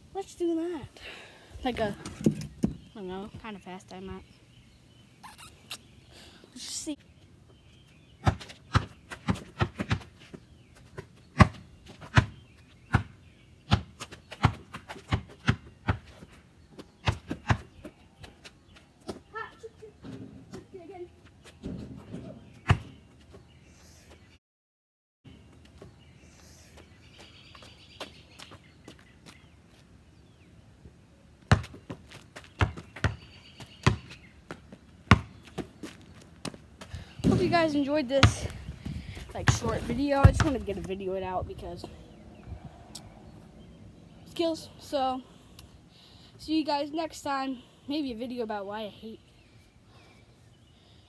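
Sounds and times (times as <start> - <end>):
basketball bouncing: 21.6 - 23.0, 31.5 - 32.0, 32.6 - 35.7, 37.2 - 40.9.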